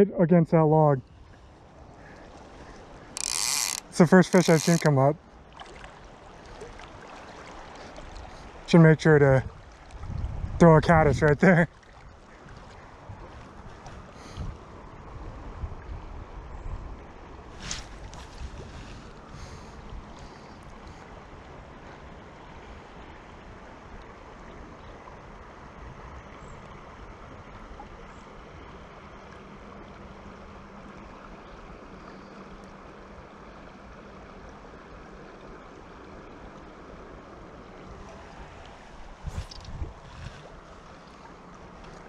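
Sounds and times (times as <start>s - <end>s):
river current rushing: 1.6s - 10.0s, 32.8s - 42.0s.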